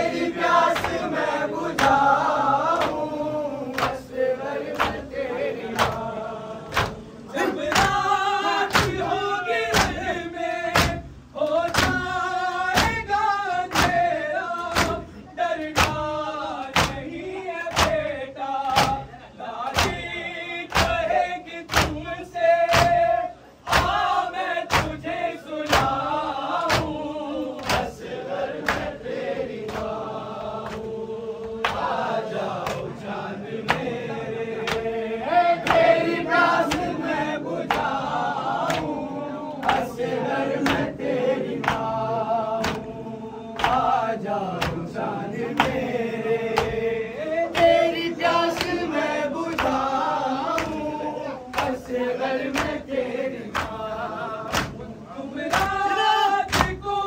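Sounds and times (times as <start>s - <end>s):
men chanting in unison: 0.0s - 57.0s.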